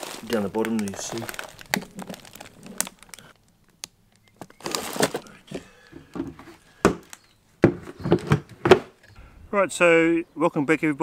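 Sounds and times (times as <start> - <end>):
plastic bags rustling: 0.0 - 3.4, 4.2 - 7.3.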